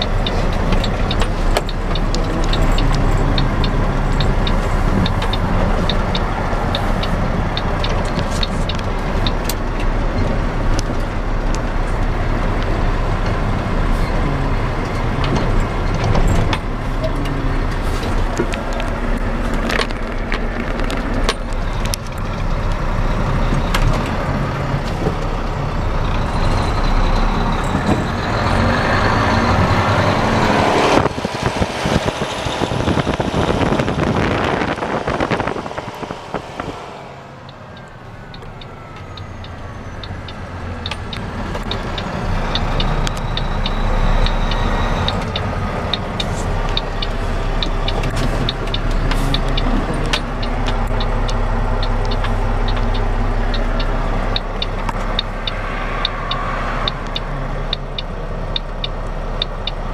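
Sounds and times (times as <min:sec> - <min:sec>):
truck engine hum: 0:00.0 - 0:59.9
loud rushing noise: 0:29.6 - 0:38.1.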